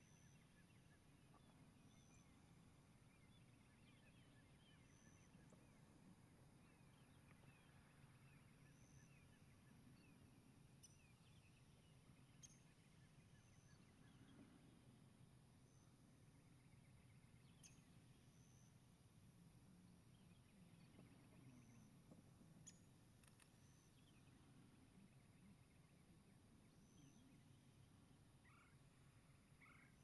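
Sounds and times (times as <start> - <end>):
low background noise: 0.0 - 30.0
faint clicks: 22.1 - 23.7.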